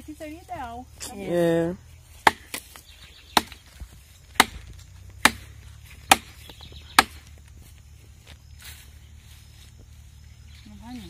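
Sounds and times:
sharp wooden whacks: 0:02.2 - 0:02.8, 0:03.4 - 0:07.3.

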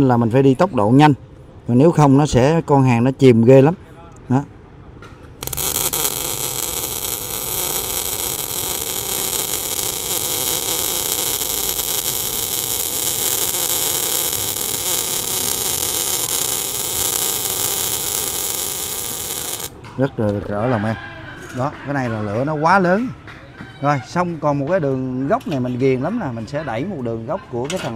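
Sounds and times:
welding arc crackling hiss: 0:05.4 - 0:19.8.

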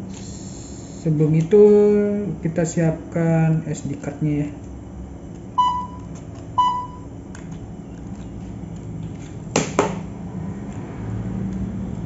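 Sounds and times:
electronic beep: 0:05.6 - 0:07.1.

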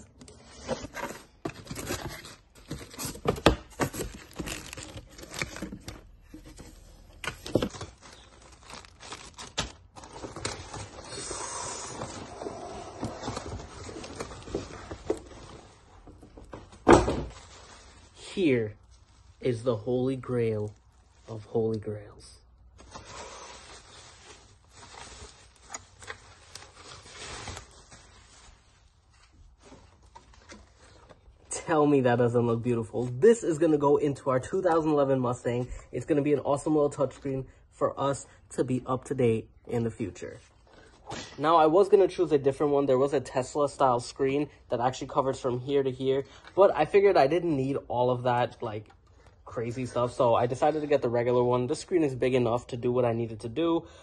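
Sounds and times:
cardboard scraping and rustling: 0:00.3 - 0:08.0
bubble wrap rustling and crinkling: 0:03.8 - 0:05.8, 0:07.5 - 0:15.6, 0:17.3 - 0:21.6, 0:22.7 - 0:31.0
plastic packaging crinkling: 0:03.9 - 0:05.9, 0:07.5 - 0:11.0.

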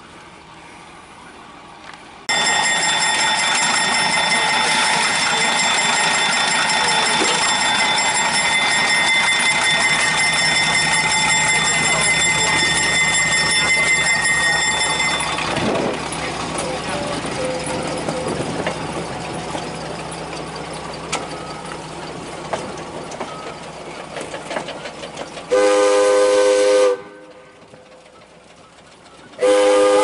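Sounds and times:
locomotive air whistle: 0:25.5 - 0:27.6, 0:29.4 - 0:30.0.

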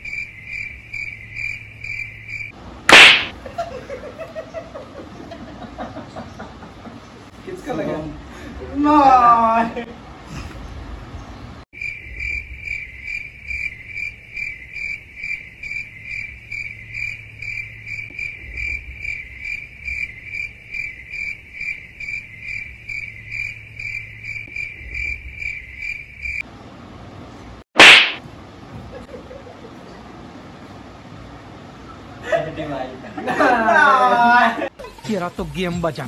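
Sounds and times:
crickets chirping: 0:00.0 - 0:02.6, 0:11.8 - 0:26.5
loud sharp smack: 0:02.9 - 0:03.4, 0:27.8 - 0:28.2.

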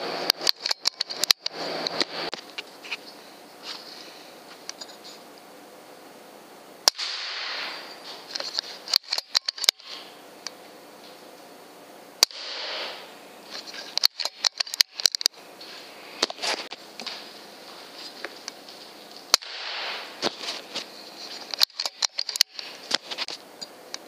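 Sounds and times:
air rifle shot cracks: 0:06.8 - 0:07.9, 0:12.2 - 0:13.1, 0:19.3 - 0:20.2
rifle mechanism clicks: 0:08.3 - 0:09.9, 0:13.9 - 0:15.3, 0:21.5 - 0:22.7.

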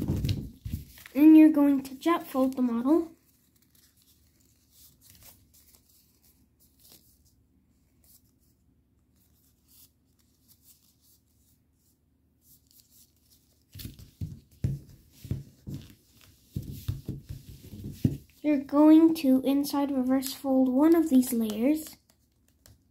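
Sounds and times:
paper rustling and crackling: 0:00.0 - 0:18.4
paper pressed against table: 0:13.6 - 0:18.4.

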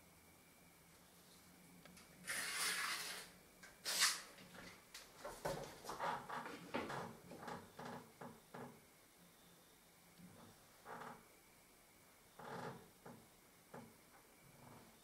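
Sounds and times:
spirit level scraping on wall: 0:02.2 - 0:04.3
pencil scratching: 0:02.3 - 0:03.3.

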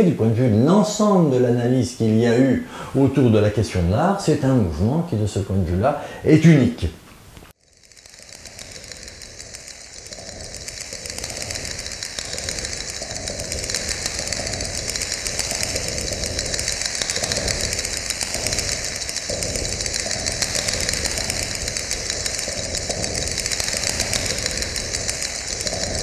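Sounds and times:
mechanical whirring with flutter: 0:07.5 - 0:26.0.

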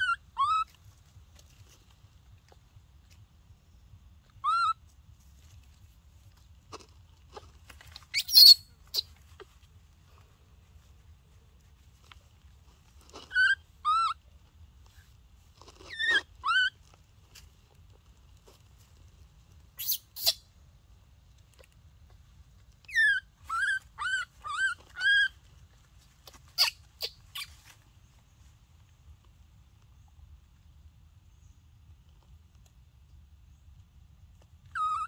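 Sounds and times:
baby monkey crying: 0:00.0 - 0:00.8, 0:04.3 - 0:04.8, 0:08.0 - 0:09.1, 0:13.2 - 0:14.2, 0:15.8 - 0:16.8, 0:22.9 - 0:25.4, 0:26.5 - 0:27.5, 0:34.7 - 0:35.0.

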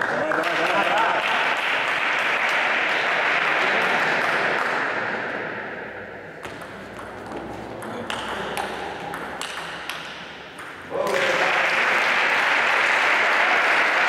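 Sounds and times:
applause: 0:00.0 - 0:04.8, 0:11.0 - 0:14.0.

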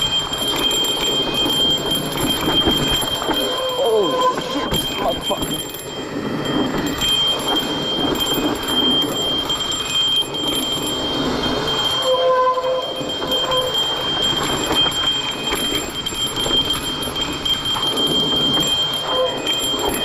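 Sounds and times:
tyres on loose dirt: 0:00.0 - 0:11.9
bike rattling: 0:00.0 - 0:20.0.

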